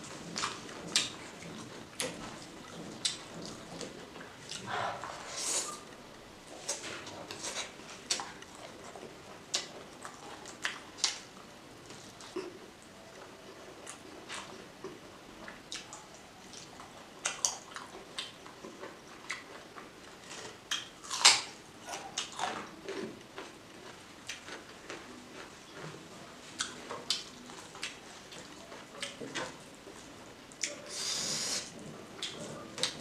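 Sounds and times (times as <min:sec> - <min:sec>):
wet chewing and mouth smacks: 0:00.2 - 0:04.7, 0:13.8 - 0:26.0, 0:32.2 - 0:33.0.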